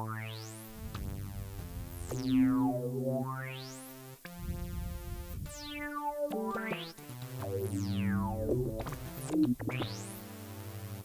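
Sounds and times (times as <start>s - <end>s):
synthesizer held notes: 0.0s - 11.0s.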